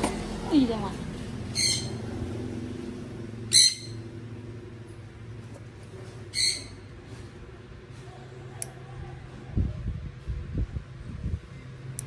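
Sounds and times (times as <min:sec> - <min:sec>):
bird chirps: 0:01.5 - 0:02.0, 0:06.3 - 0:06.9.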